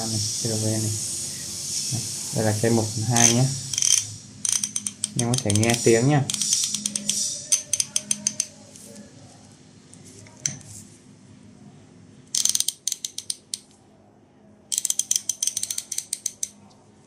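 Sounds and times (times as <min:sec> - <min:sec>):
ratchet handle clicking: 0:03.2 - 0:08.5, 0:12.3 - 0:13.7, 0:14.7 - 0:16.6.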